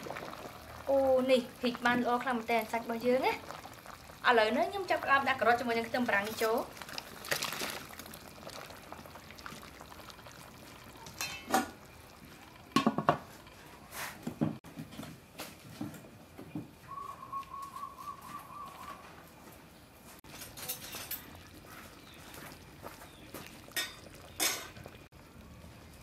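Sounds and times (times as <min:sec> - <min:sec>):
stew bubbling in pot: 0:00.0 - 0:14.7, 0:20.2 - 0:26.0
metal lid clanking onto pot: 0:11.2 - 0:11.7.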